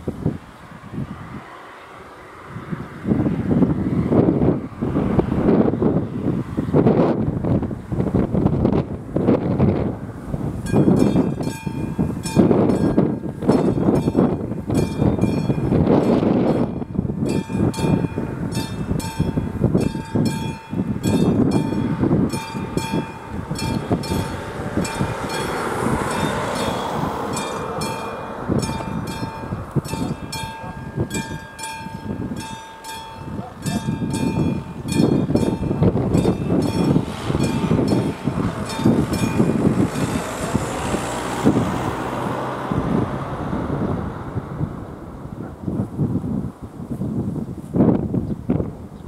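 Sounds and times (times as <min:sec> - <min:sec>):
road vehicles rumbling: 0:00.0 - 0:49.0
wind on microphone: 0:00.0 - 0:49.0
level-crossing warning bell: 0:10.6 - 0:40.4.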